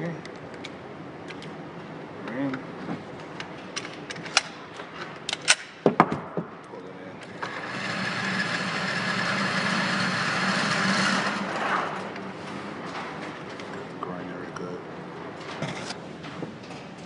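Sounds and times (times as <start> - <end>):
target carrier motor running: 7.3 - 12.4.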